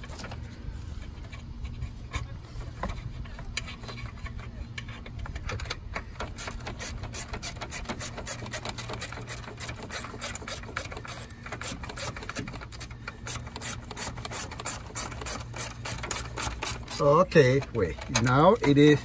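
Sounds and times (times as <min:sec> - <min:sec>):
low steady hum: 0:00.0 - 0:19.0
hand ratchet clicking: 0:05.4 - 0:19.0.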